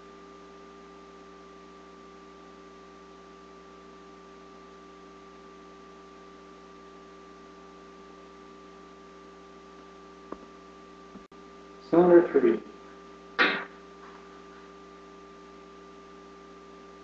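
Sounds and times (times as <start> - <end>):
electrical hum and hiss: 0.0 - 17.0
high whine: 10.9 - 16.0.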